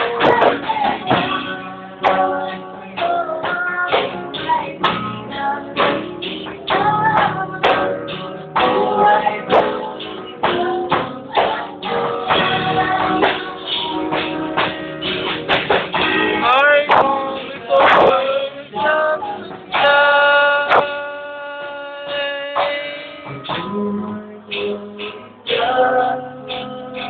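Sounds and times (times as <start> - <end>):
strummed electric guitar: 0.0 - 27.0
man singing: 16.4 - 27.0.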